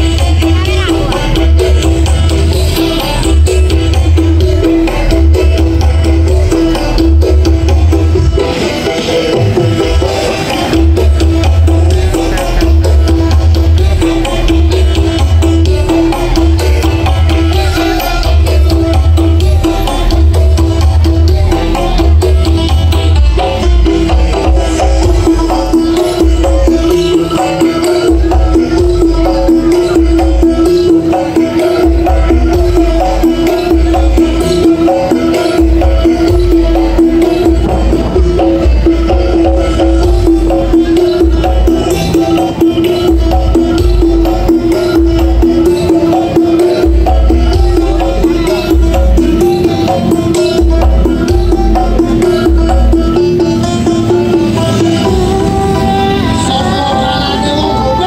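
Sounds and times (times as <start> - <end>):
loud dance music with heavy bass: 0.0 - 58.0.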